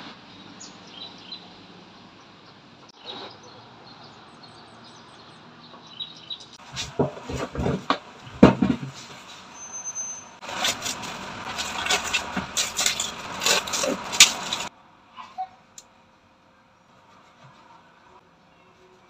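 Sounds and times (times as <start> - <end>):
knocks and rustles of groceries: 6.6 - 9.3.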